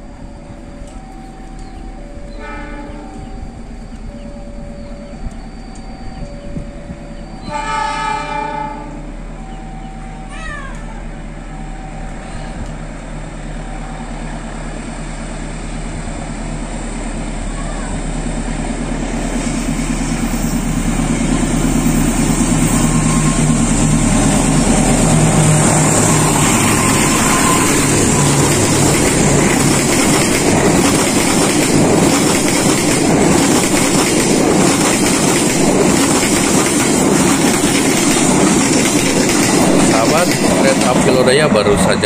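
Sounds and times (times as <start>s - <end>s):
locomotive engine hum: 0.0s - 42.0s
train wheels clickety-clack on rails: 17.6s - 42.0s.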